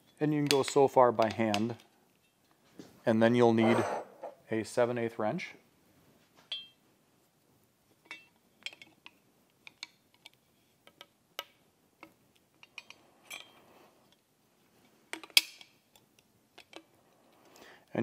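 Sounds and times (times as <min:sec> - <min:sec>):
metal wrench clinking on pipe fittings: 0:12.6 - 0:13.6.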